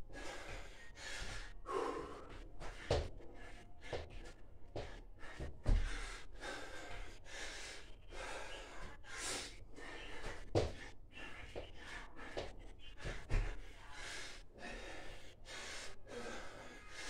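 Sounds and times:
man breathing hard: 0.0s - 17.0s.

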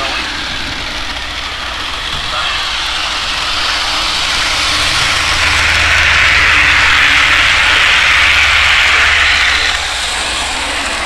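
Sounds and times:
model steam locomotive running: 0.0s - 11.0s
simulated steam engine hiss: 0.0s - 11.0s.

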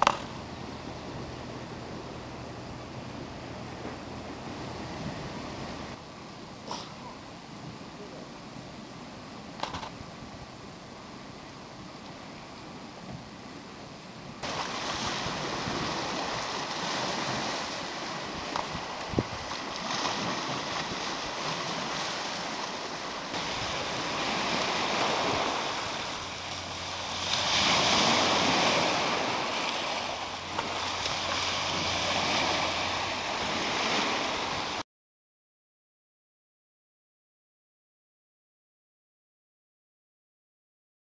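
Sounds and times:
sharp click: 9.6s - 9.9s
waves washing on pebbly shore: 14.4s - 34.8s.

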